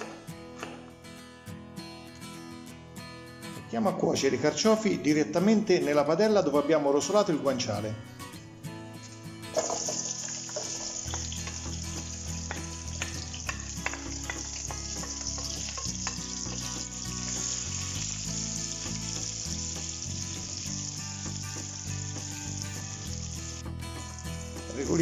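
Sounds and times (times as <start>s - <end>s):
vegetables sizzling in a frying pan: 9.5s - 25.0s.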